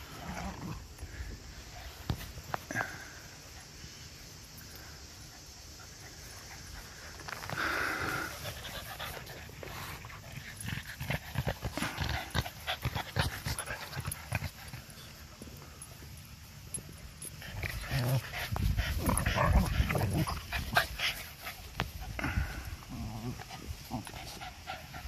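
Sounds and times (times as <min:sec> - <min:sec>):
dog panting: 0:05.7 - 0:15.1, 0:23.4 - 0:25.0.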